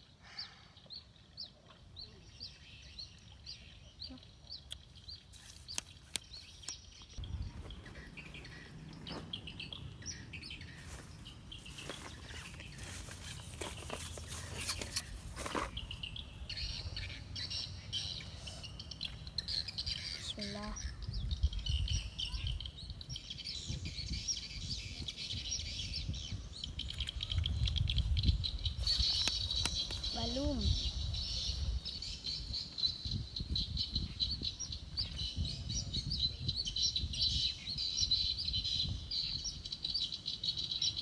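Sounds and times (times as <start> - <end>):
small birds chirping: 0.0 - 41.0
wind rumble on microphone: 7.1 - 10.6, 20.3 - 40.1.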